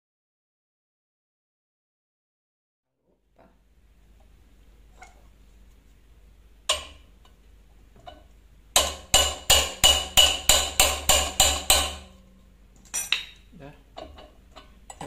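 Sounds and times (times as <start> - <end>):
hammer knocking on metal spanner: 8.8 - 12.1.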